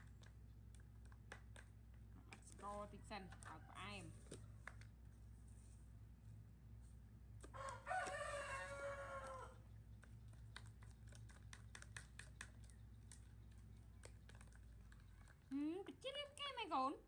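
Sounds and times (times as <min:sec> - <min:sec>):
rooster crowing: 0:07.5 - 0:09.6.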